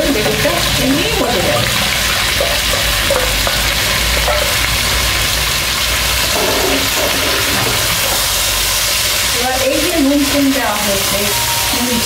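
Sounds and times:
vegetables sizzling in a pan: 0:00.0 - 0:12.0
metal spatula stirring: 0:06.2 - 0:08.3.

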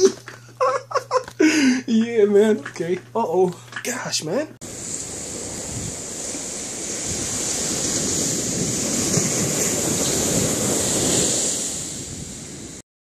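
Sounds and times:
waves breaking on beach: 0:04.6 - 0:12.8
wind buffeting microphone: 0:04.6 - 0:12.8.

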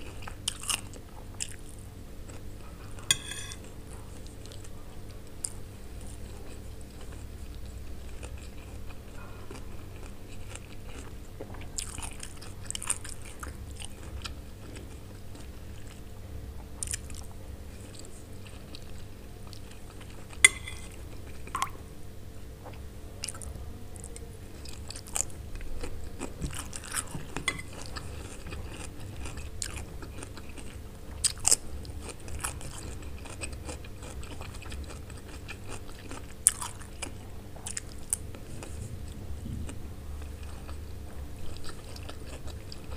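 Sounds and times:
chewing and crunching food: 0:00.0 - 0:21.8, 0:22.5 - 0:42.9
steady low hum: 0:00.0 - 0:42.9
metal spoon clinking on plate: 0:03.1 - 0:03.7, 0:20.4 - 0:21.0, 0:27.4 - 0:27.8.

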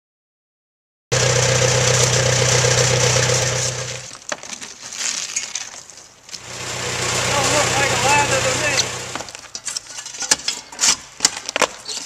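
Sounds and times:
engine running: 0:01.1 - 0:04.1, 0:06.4 - 0:09.4
roof shingles being pried off: 0:01.9 - 0:06.4.

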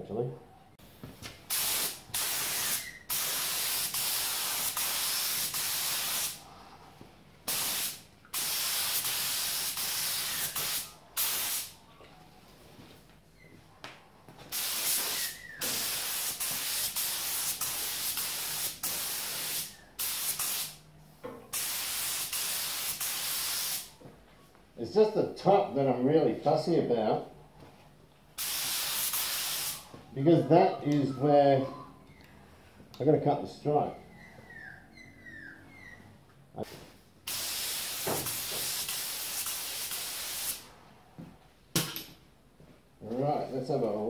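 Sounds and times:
spray gun hissing: 0:01.5 - 0:06.4, 0:07.5 - 0:11.7, 0:14.5 - 0:20.8, 0:21.5 - 0:23.9, 0:28.4 - 0:29.8, 0:37.3 - 0:40.6.

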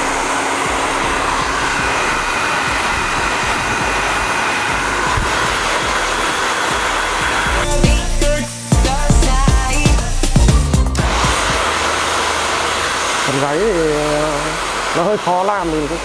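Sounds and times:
music: 0:00.0 - 0:12.2
hair dryer blowing: 0:00.0 - 0:16.0.

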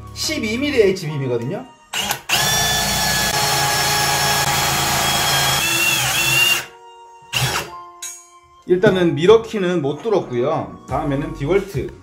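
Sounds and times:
cordless drill motor whine: 0:02.0 - 0:06.7.

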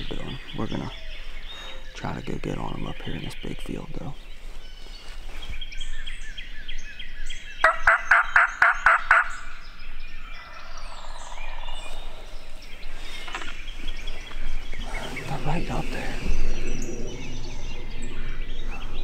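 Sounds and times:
turkey gobbling: 0:07.6 - 0:09.6.

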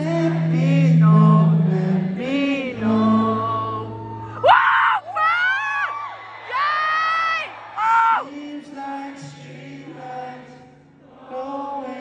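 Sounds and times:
man singing: 0:00.0 - 0:04.0, 0:07.8 - 0:12.0
crowd cheering and whooping: 0:03.4 - 0:08.4.

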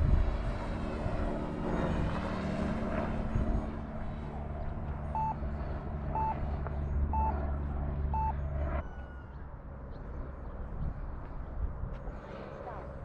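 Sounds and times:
steady low rumble: 0:00.0 - 0:08.8, 0:09.7 - 0:13.0
short electronic beeps: 0:05.1 - 0:05.4, 0:06.1 - 0:06.4, 0:07.1 - 0:07.4, 0:08.1 - 0:08.4.

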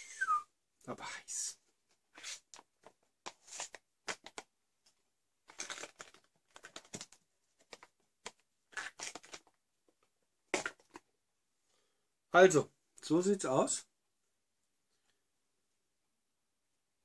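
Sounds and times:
spoon scraping pouch: 0:02.1 - 0:02.5, 0:08.7 - 0:09.5
meal pouch crinkling: 0:05.4 - 0:09.6.

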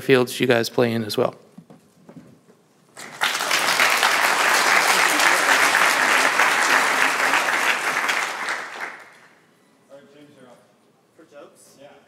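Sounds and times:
audience applauding: 0:03.0 - 0:09.4.

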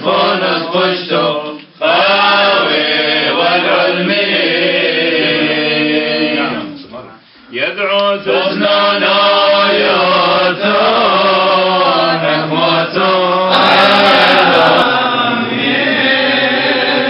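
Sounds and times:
man singing liturgical chant: 0:07.5 - 0:17.0.

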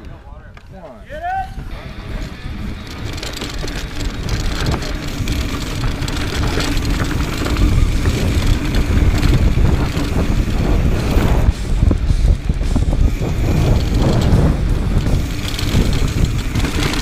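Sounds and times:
bike rattling: 0:00.0 - 0:17.0
wind on microphone: 0:01.5 - 0:17.0
tyres crunching over gravel: 0:02.2 - 0:11.2.

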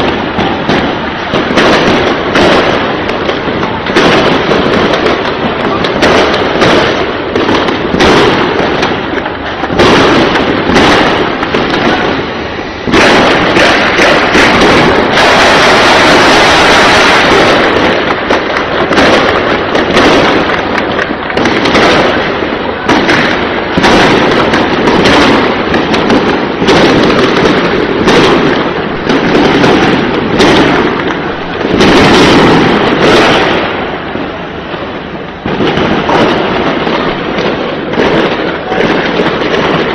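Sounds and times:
gunfire bursts: 0:12.9 - 0:33.7.

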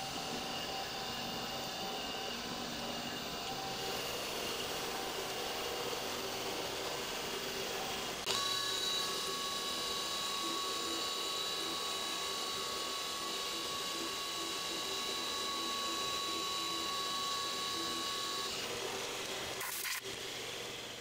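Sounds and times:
milling machine spindle whine: 0:00.0 - 0:21.0.

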